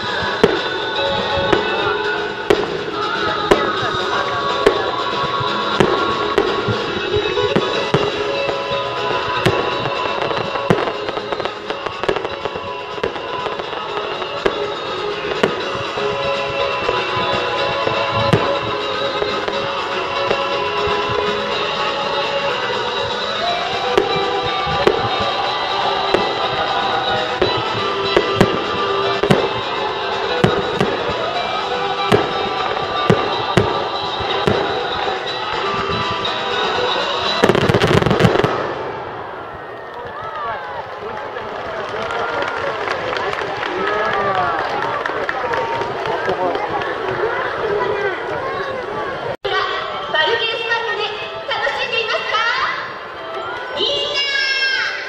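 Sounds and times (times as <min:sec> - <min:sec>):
loud music: 0:00.0 - 0:39.3
fireworks bursting: 0:00.0 - 0:47.6
fireworks crackle: 0:00.0 - 0:48.7.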